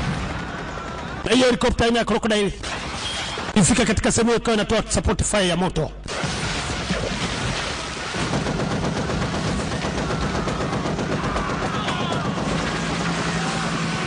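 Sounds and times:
rapid machine-gun fire: 6.1 - 14.0.

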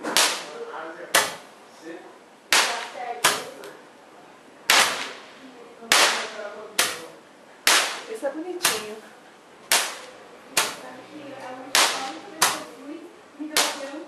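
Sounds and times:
firework bangs: 2.5 - 3.6.

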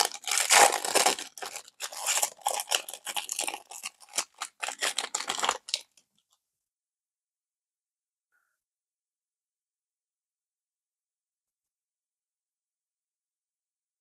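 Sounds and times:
plastic wrapper ripping: 0.0 - 5.9
plastic wrapper crinkling: 0.0 - 6.0.

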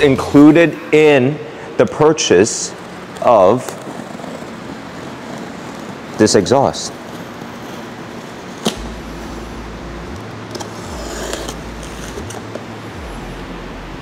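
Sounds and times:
steady low hum: 0.0 - 14.0
box cutter slicing tape and cardboard: 10.5 - 12.6.

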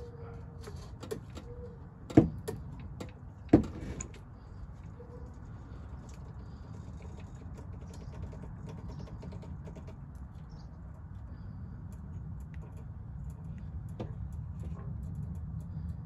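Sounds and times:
low background rumble: 0.0 - 16.0
faint clicks and ticks: 5.9 - 16.0.

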